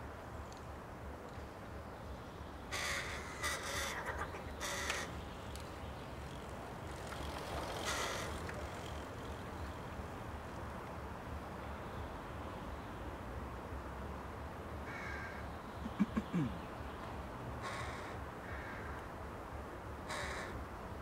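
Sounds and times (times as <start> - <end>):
crows cawing: 2.7 - 5.2, 7.7 - 8.6, 14.8 - 16.5, 17.6 - 19.1, 20.0 - 20.6.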